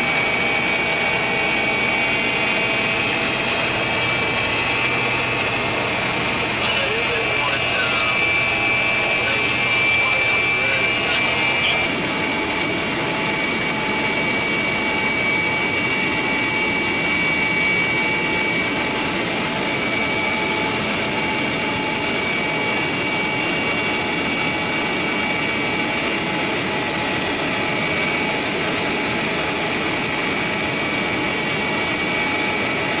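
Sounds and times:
high whine: 0:00.0 - 0:18.7
turbine engine roar: 0:00.0 - 0:33.0.

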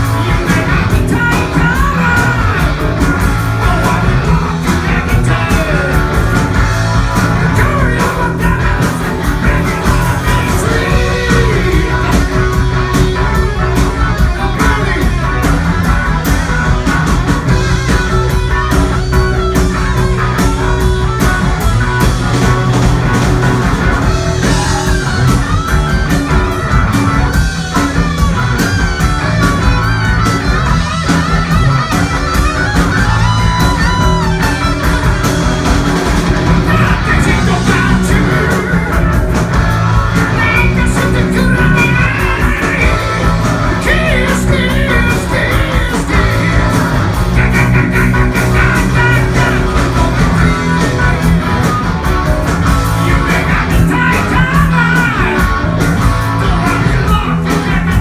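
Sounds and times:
vocals: 0:00.0 - 0:06.6, 0:07.2 - 0:12.6, 0:14.1 - 0:15.6, 0:36.5 - 0:39.3, 0:40.2 - 0:51.3, 0:52.9 - 0:58.0
bass guitar: 0:00.0 - 0:58.0
distorted electric guitar: 0:00.0 - 0:58.0
drums: 0:00.0 - 0:58.0.

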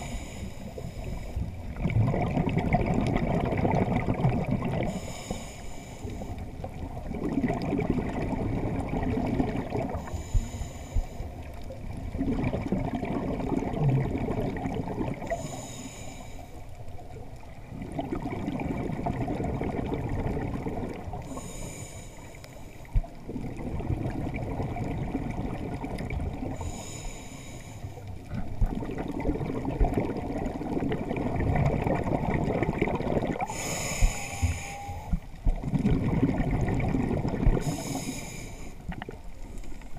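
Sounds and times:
diver breathing through regulator: 0:00.0 - 0:01.4, 0:04.8 - 0:06.5, 0:09.9 - 0:11.4, 0:15.2 - 0:16.6, 0:21.2 - 0:23.0, 0:26.5 - 0:28.1, 0:33.4 - 0:35.2, 0:37.6 - 0:38.8
muffled bubbling rumble: 0:00.0 - 0:05.3, 0:06.2 - 0:15.6, 0:16.6 - 0:21.6, 0:22.8 - 0:27.0, 0:27.9 - 0:38.2.

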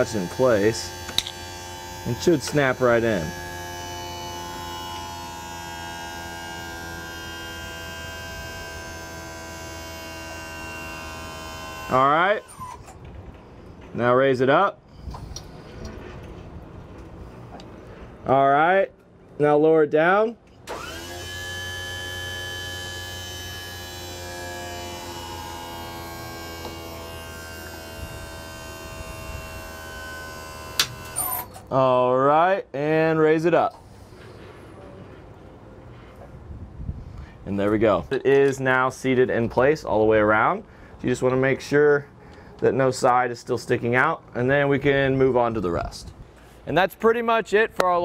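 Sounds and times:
hydraulic jack humming and whining: 0:00.0 - 0:13.9, 0:14.8 - 0:18.2, 0:20.5 - 0:31.8
hydraulic system humming: 0:20.6 - 0:31.7.

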